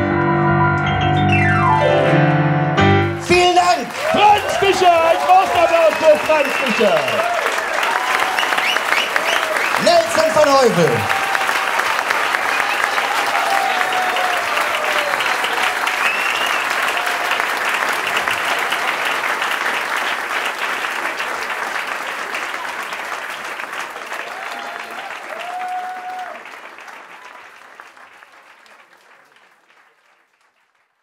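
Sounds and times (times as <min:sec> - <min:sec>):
audience cheering: 0:03.2 - 0:27.8
audience applauding: 0:03.2 - 0:31.0.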